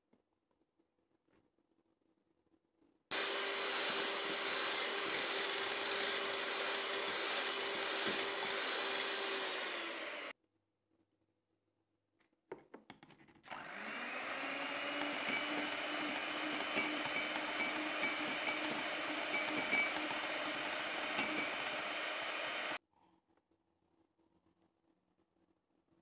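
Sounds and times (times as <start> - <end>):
electric mixer whining: 3.1 - 10.4, 13.5 - 22.8
mixer clicks: 14.8 - 22.8.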